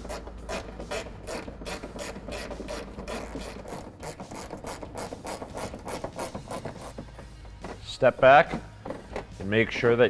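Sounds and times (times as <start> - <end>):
ratchet clicking: 0.0 - 7.9.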